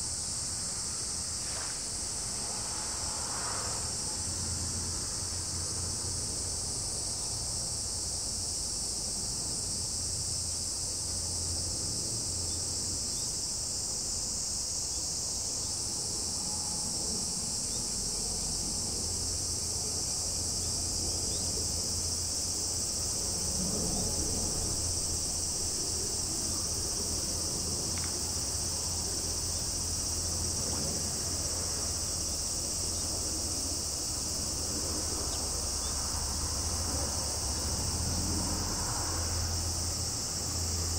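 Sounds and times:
high-pitched insect chorus: 0:00.0 - 0:40.9
low steady rumble: 0:14.2 - 0:40.9.

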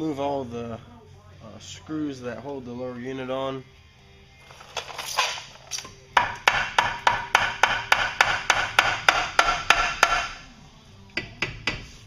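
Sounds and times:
mallet striking metal: 0:06.2 - 0:10.4.

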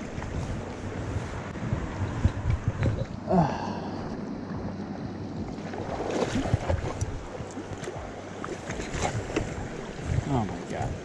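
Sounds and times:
wind rumbling on microphone: 0:00.0 - 0:11.0
light knocks and splashes: 0:05.6 - 0:10.8.

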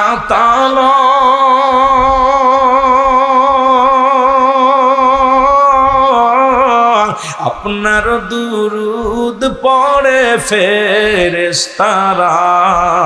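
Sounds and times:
man singing unaccompanied: 0:00.0 - 0:13.0.

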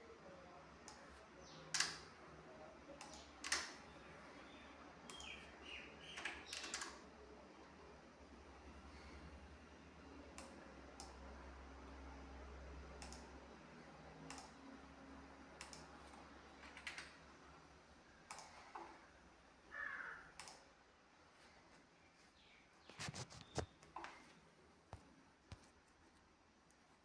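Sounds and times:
soft clicks: 0:00.8 - 0:02.1, 0:03.0 - 0:03.8, 0:05.1 - 0:05.5, 0:10.3 - 0:11.2, 0:13.0 - 0:13.4, 0:14.2 - 0:14.7, 0:15.6 - 0:17.2, 0:18.2 - 0:19.0, 0:20.3 - 0:20.8.

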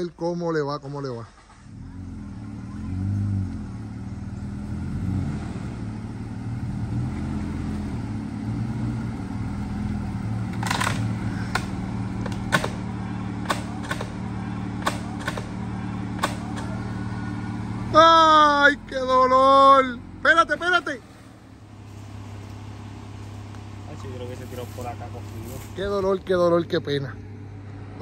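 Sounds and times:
engine running at low revs: 0:00.8 - 0:28.0
sharp knocks and clunks: 0:10.5 - 0:14.2, 0:14.8 - 0:16.7.

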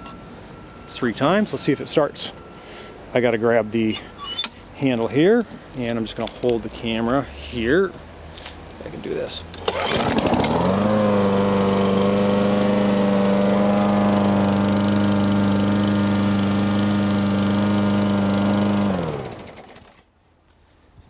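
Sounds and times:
lawn mower engine running: 0:09.5 - 0:20.0.

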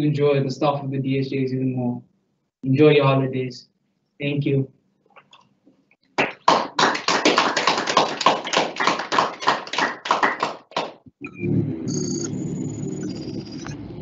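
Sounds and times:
hand clapping: 0:06.2 - 0:11.0
high held tone: 0:11.2 - 0:14.0
low hum: 0:11.2 - 0:14.0.

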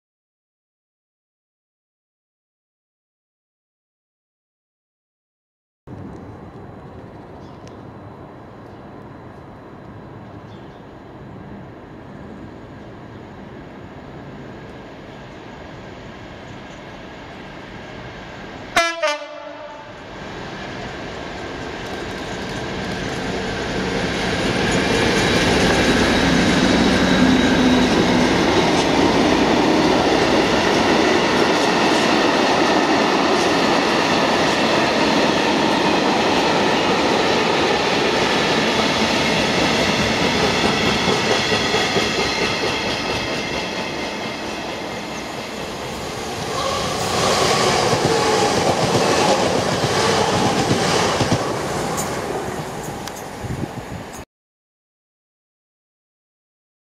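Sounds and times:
diesel locomotive engine: 0:05.9 - 0:54.2
two-note train horn blast: 0:18.8 - 0:20.1.

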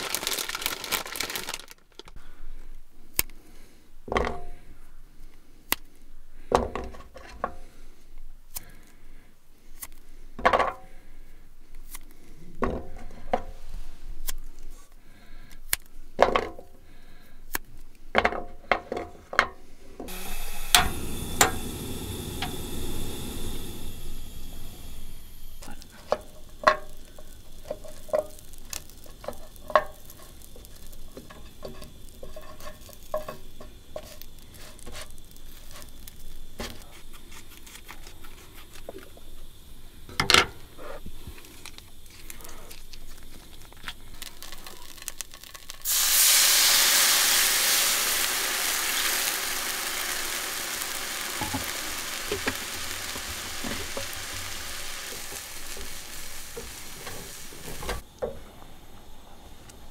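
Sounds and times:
liquid sizzling in hot pan: 0:20.1 - 0:40.0, 0:40.6 - 0:58.0
chopsticks tapping in frying pan: 0:25.7 - 0:35.0.

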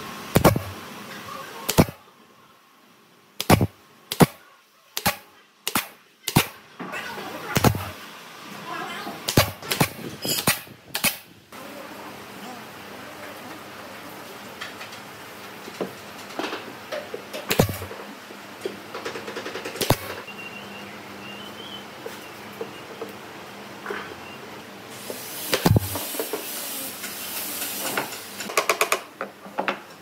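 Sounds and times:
sharp workshop bangs: 0:03.4 - 0:04.4, 0:17.5 - 0:17.9.

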